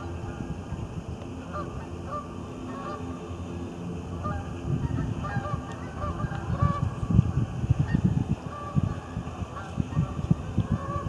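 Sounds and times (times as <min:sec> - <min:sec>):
wind rumble on microphone: 0:00.0 - 0:11.0
geese honking: 0:01.4 - 0:03.5, 0:04.1 - 0:07.1, 0:07.8 - 0:11.0.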